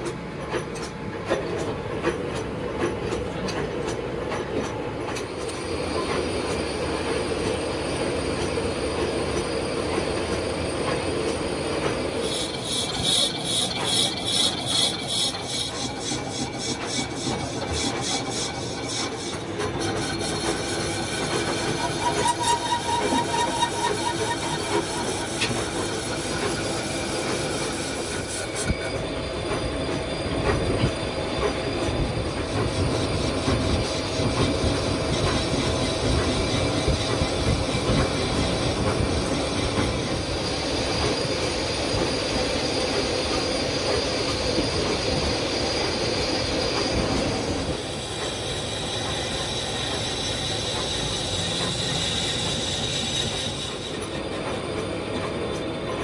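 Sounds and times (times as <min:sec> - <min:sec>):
lathe running gear: 0:09.3 - 0:56.0
thin high squeal: 0:12.1 - 0:27.6, 0:46.3 - 0:54.2
lathe cutting tool scraping metal: 0:12.2 - 0:28.7.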